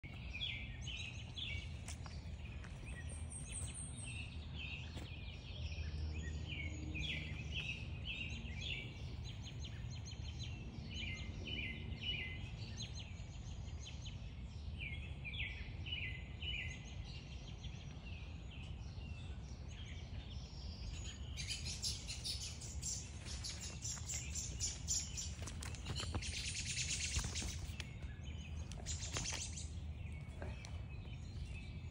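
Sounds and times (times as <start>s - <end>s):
small birds chirping: 0.0s - 31.9s
low background rumble: 16.2s - 31.9s.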